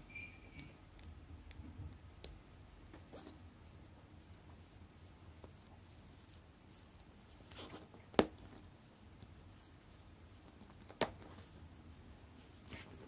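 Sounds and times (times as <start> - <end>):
faint handling rustle: 3.0 - 13.0.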